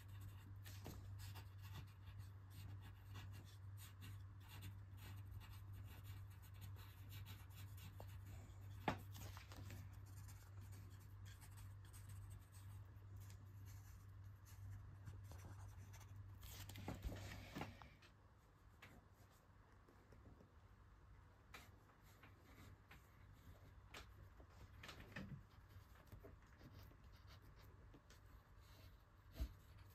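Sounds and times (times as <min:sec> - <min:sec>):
pencil scratching on paper: 0:00.0 - 0:16.6
low steady hum: 0:00.0 - 0:29.9.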